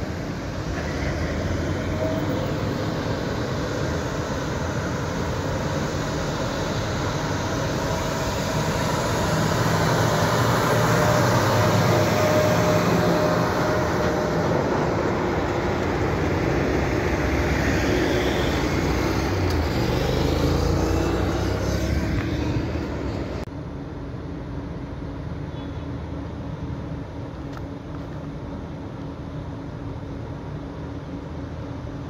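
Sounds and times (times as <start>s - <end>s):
heavy diesel truck passing: 0.0s - 23.5s.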